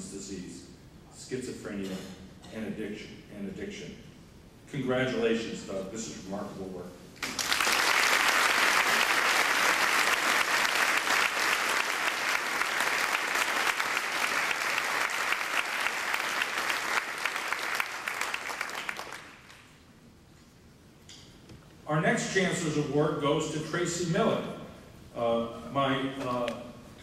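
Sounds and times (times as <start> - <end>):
audience applauding: 7.2 - 19.7.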